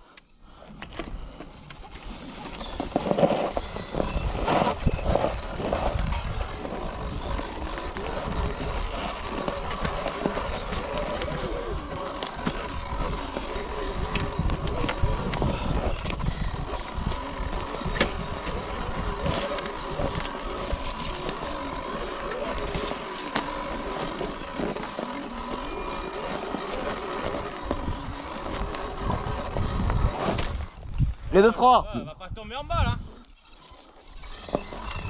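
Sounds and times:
bike knocking and rattling: 0.7 - 31.0
electric motor whine: 0.9 - 31.2, 33.0 - 35.0
wind buffeting microphone: 3.6 - 21.5, 26.4 - 33.2.

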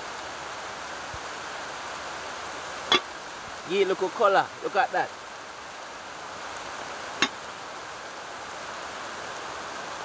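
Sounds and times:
steady rain falling: 0.0 - 10.0.

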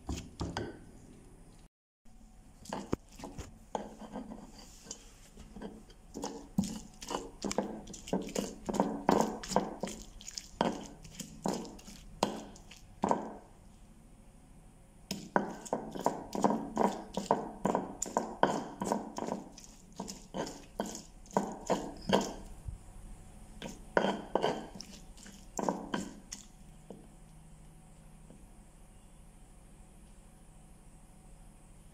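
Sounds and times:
stone pestle pounding in mortar: 6.1 - 13.4, 15.1 - 22.5, 23.6 - 26.4.

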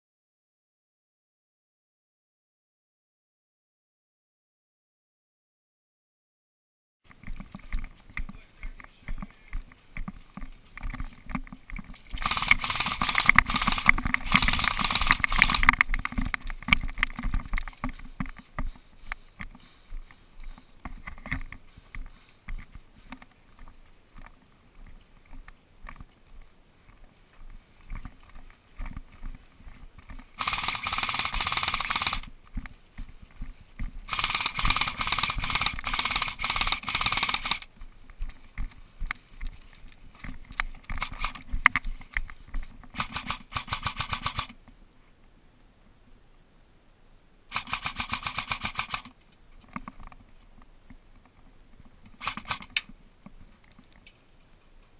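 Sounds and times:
airsoft rifle full-auto fire: 12.2 - 15.8, 30.4 - 32.3, 34.1 - 37.7, 43.0 - 44.6, 47.5 - 49.1, 52.2 - 52.8.

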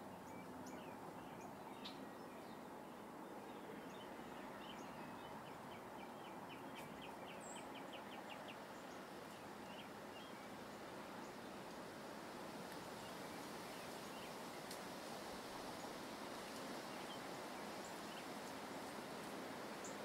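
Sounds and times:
steady background noise: 0.0 - 20.0.

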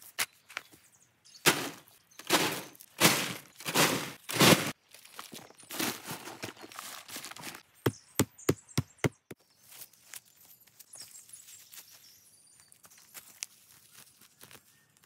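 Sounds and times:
rustling of leaf litter: 1.4 - 7.6, 9.6 - 15.0.

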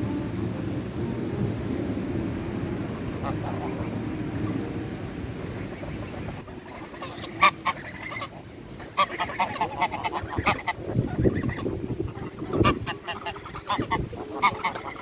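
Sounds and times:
geese honking: 3.1 - 4.8, 5.4 - 15.0.

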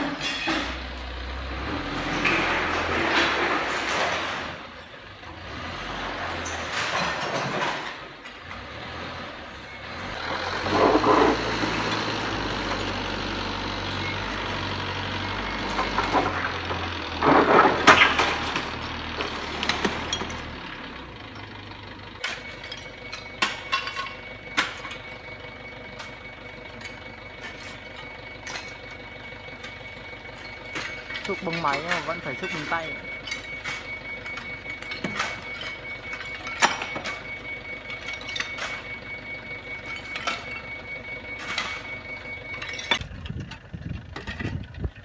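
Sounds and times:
metal scraping and clattering: 0.0 - 5.0, 5.9 - 8.7, 10.1 - 21.5, 26.0 - 39.0, 41.4 - 45.0
forklift engine running: 0.0 - 45.0
shovel scraping debris: 1.7 - 4.7, 10.2 - 13.0, 15.7 - 20.5, 22.2 - 25.0, 26.8 - 29.0, 30.4 - 39.0, 41.4 - 43.1.

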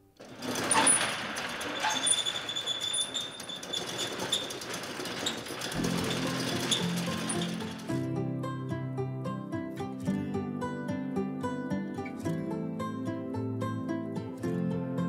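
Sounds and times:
metal roll-up door rattling: 0.1 - 8.1.

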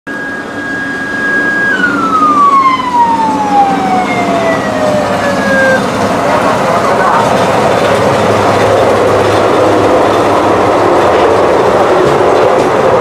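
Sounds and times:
high siren-like tone: 0.1 - 5.9
diesel engine humming: 0.1 - 13.0.

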